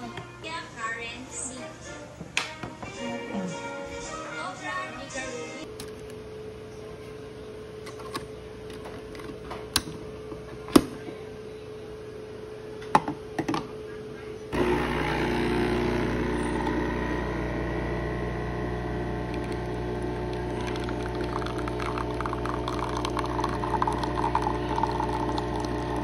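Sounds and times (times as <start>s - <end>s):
coffee machine pump humming: 14.5s - 26.0s.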